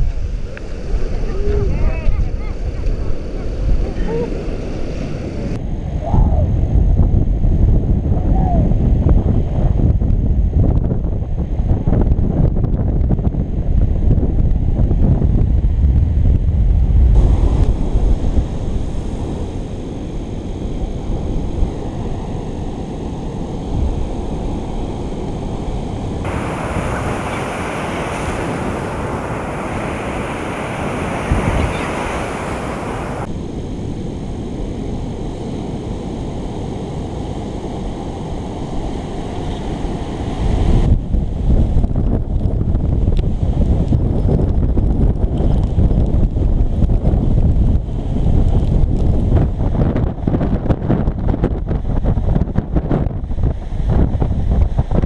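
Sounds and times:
wind buffeting the microphone: 0.0s - 33.7s, 37.8s - 55.0s
surf breaking on a beach: 17.1s - 41.6s
hissing rush: 26.2s - 33.3s.

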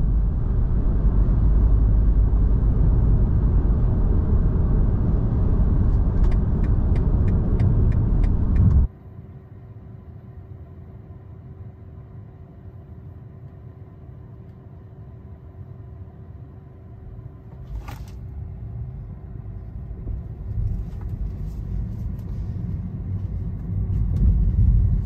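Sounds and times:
car cabin rumble: 0.0s - 8.9s, 17.1s - 25.0s.

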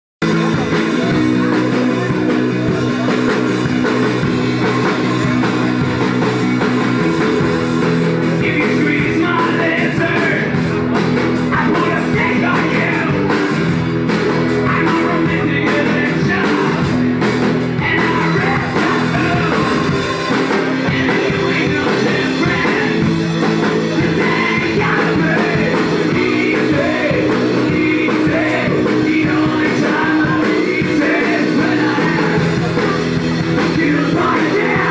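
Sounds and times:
drums: 0.2s - 34.9s
live rock band playing: 0.2s - 34.9s
person singing: 8.4s - 13.6s, 14.3s - 17.0s, 17.8s - 34.9s.

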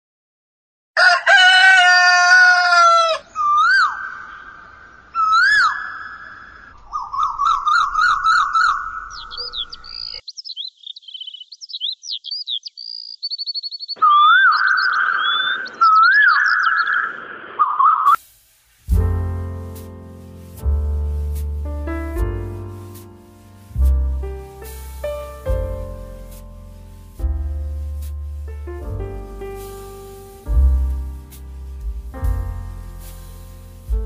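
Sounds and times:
rooster crowing: 1.0s - 3.9s
fast wavering animal call: 2.8s - 4.5s, 5.2s - 9.2s, 14.0s - 18.2s
birds chirping and twittering: 3.0s - 18.2s
animal cries: 14.0s - 16.7s.

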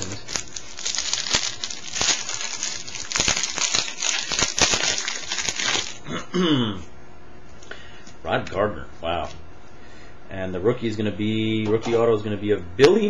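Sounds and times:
wrapper tearing and crinkling: 0.0s - 6.0s.

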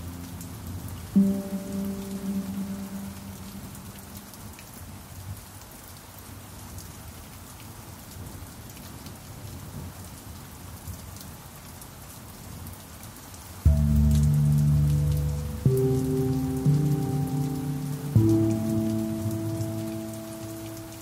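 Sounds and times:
steady rain falling: 0.0s - 21.0s
ringing pan drum note: 1.2s - 4.2s, 13.7s - 21.0s.

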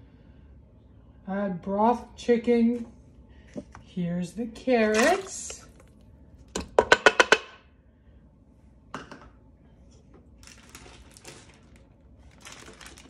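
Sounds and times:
chopped carrots dropping into metal pot: 4.8s - 5.8s.

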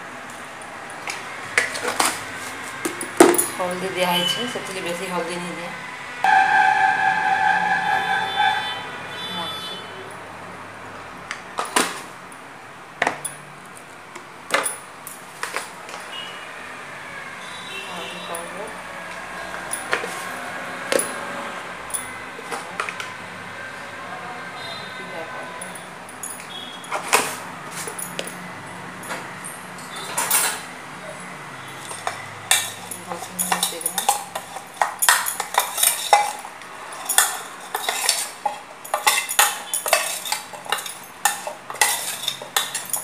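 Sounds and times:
metal utensils clinking on tin: 29.8s - 30.7s, 31.7s - 43.0s.

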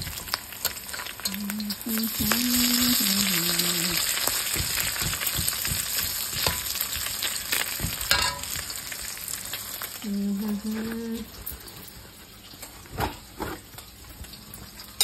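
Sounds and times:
food sizzling in a pan: 0.0s - 15.0s
metal spatula scraping a pan: 0.1s - 2.8s.

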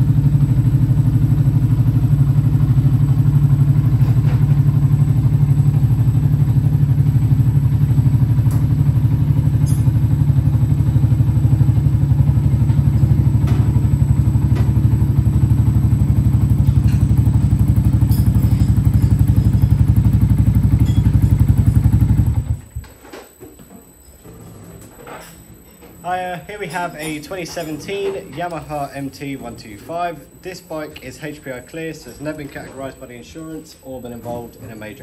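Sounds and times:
motorcycle engine idling: 0.0s - 22.8s.

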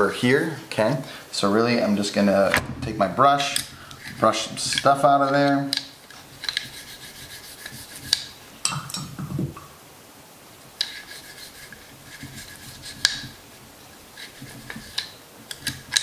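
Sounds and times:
brush scrubbing metal: 3.0s - 8.4s, 10.8s - 16.0s.

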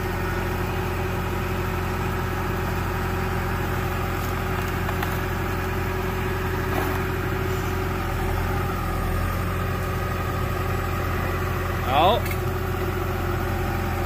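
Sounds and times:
diesel engine idling: 0.0s - 14.0s.

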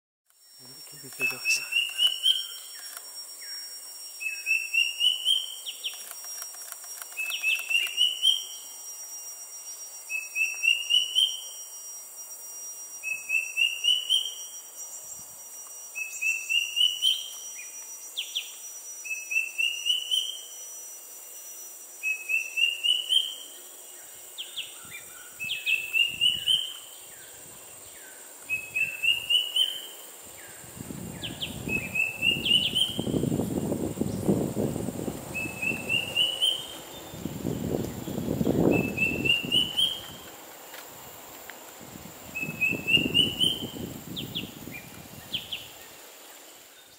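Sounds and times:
bird whistling rising notes: 24.4s - 27.4s, 28.0s - 33.3s, 35.3s - 40.3s, 42.3s - 45.8s.

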